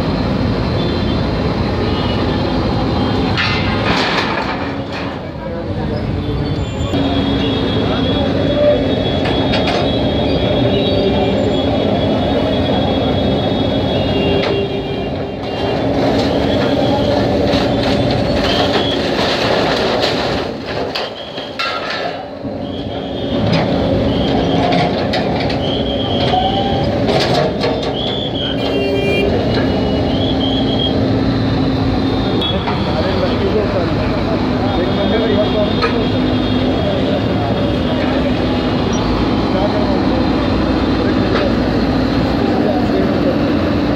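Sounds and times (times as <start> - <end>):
diesel engine running: 0.0 - 21.5, 22.2 - 43.9
metal clanks: 17.5 - 22.3.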